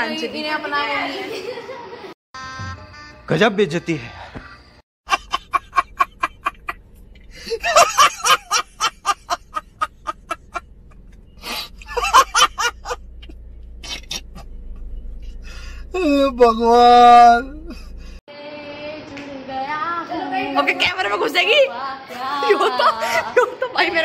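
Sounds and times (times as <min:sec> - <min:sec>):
man laughing hard: 0:05.1 - 0:06.8, 0:07.4 - 0:10.6, 0:11.8 - 0:13.0
man breathing: 0:07.2 - 0:07.6, 0:11.3 - 0:11.9, 0:15.2 - 0:15.9, 0:17.7 - 0:18.2.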